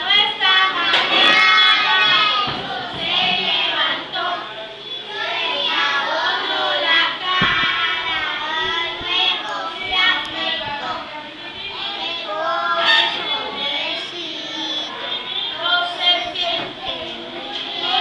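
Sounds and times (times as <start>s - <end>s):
children singing together: 0.0s - 18.0s
dull knock: 7.4s - 7.7s.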